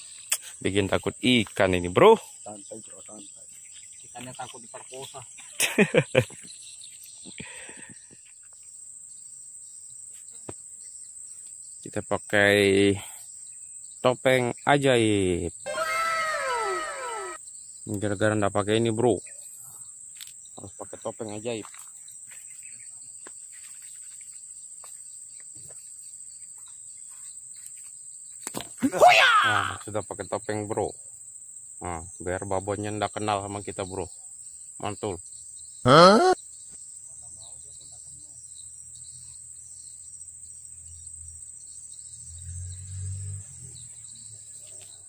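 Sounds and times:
faint chirps: 0.0 - 31.1
insects droning: 0.0 - 45.0.

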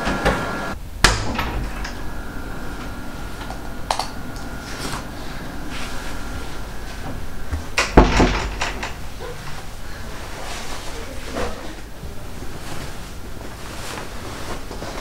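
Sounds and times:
loud heavy thump: 4.5 - 9.8.

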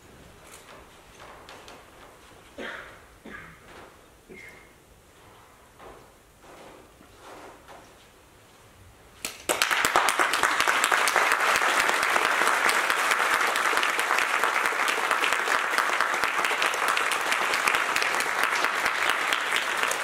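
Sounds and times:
audience applauding: 9.3 - 20.0.

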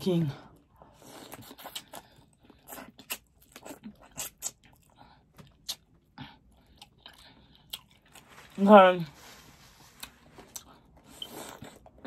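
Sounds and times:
biting and wet chewing: 0.5 - 8.6, 9.8 - 12.0.

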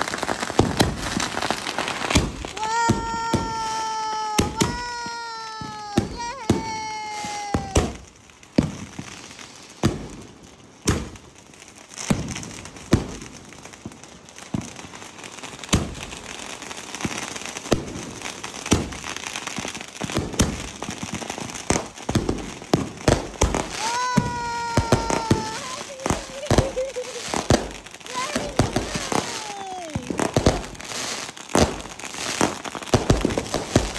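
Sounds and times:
crackling hiss: 0.0 - 33.9
firework shells bursting: 20.1 - 33.9.

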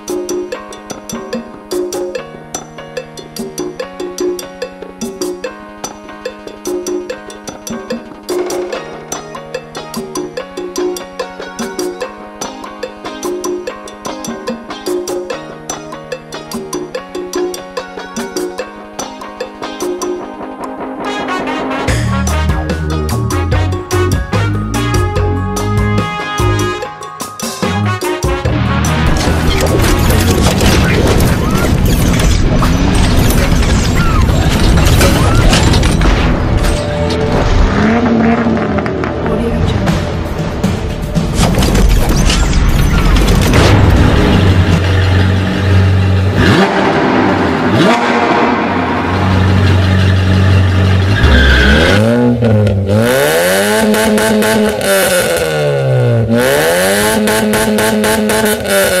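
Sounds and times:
cinematic music: 0.0 - 59.0
booming hits: 28.5 - 50.3
mechanical clanking: 29.0 - 37.4
exhaust crackling: 36.0 - 41.0, 43.1 - 59.0
sports car engine revving: 37.7 - 39.5, 44.6 - 59.0.

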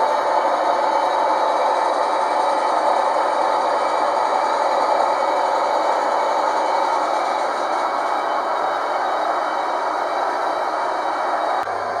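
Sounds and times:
model train motor whirring: 0.0 - 12.0.

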